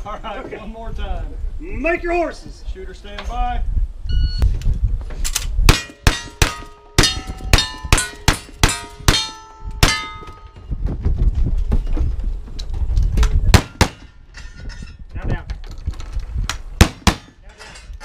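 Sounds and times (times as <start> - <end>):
steel target ringing clang: 5.7 - 10.6.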